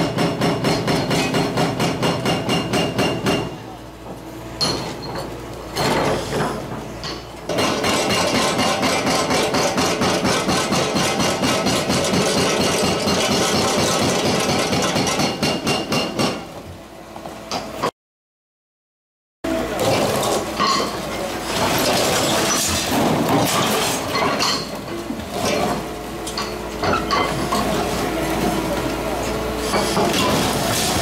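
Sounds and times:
hydraulic breaker pounding concrete: 0.0s - 4.2s, 7.5s - 16.6s, 19.5s - 31.0s.

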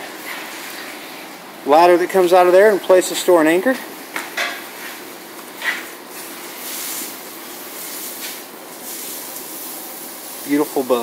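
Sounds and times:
room noise hiss: 0.0s - 11.0s.

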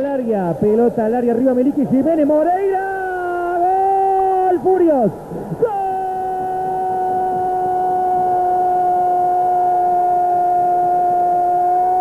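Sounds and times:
commentator shouting goal: 1.4s - 8.8s.

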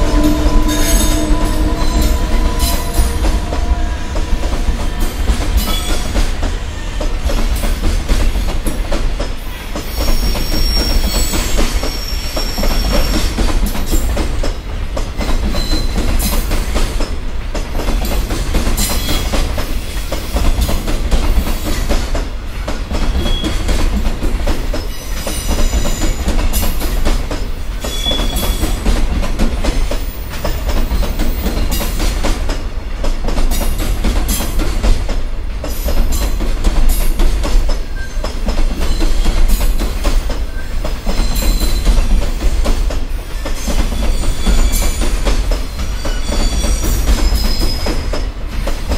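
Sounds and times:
high wheel squeals: 0.0s - 6.2s, 9.9s - 13.3s, 27.8s - 28.8s, 43.6s - 47.9s
freight train rumbling past: 0.0s - 48.9s.

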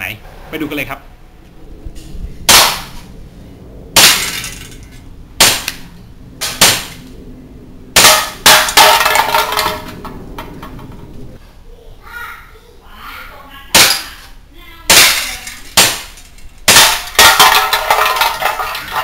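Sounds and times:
pellets striking metal can: 8.0s - 9.8s, 14.9s - 19.0s.

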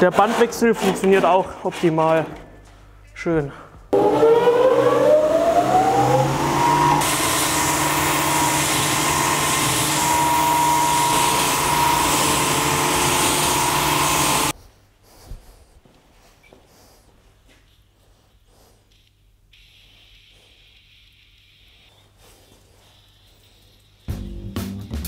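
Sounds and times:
belt sanding wooden boards: 0.0s - 1.4s, 7.0s - 14.6s
belt sander whining: 4.0s - 14.5s.

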